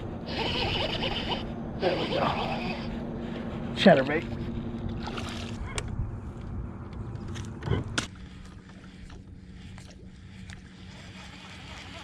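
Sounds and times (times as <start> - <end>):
low hum: 0.0 - 12.0
fish splashing in water: 5.0 - 5.7.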